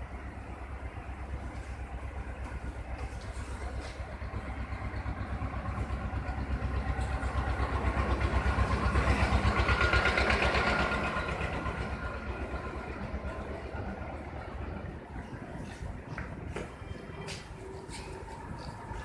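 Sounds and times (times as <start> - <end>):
vehicle engine passing by: 1.4 - 15.8.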